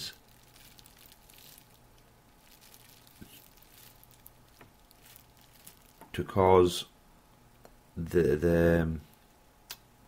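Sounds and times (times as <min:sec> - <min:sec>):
bubble wrap crinkling: 0:00.0 - 0:06.2
low steady hum: 0:00.0 - 0:10.0.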